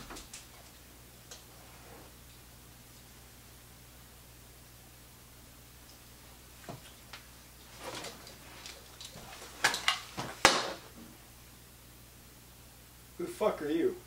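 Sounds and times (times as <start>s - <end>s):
clothing rustle: 1.4s - 2.3s, 6.3s - 11.0s.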